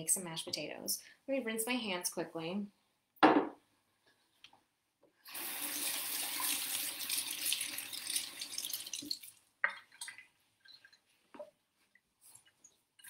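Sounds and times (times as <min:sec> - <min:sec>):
kitchen tap running: 0:05.3 - 0:09.4.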